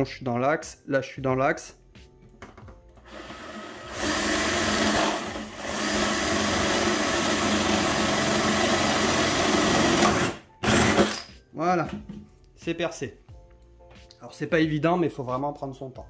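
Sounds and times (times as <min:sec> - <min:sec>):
electric drill boring: 0:03.0 - 0:11.2.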